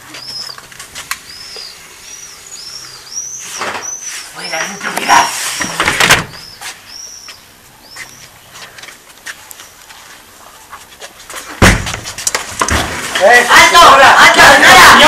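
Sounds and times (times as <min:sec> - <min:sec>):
high squeaky chirps: 0:00.0 - 0:08.4
door forced open with a bang: 0:05.8 - 0:06.4, 0:11.6 - 0:12.1
sharp knocks: 0:11.6 - 0:13.1.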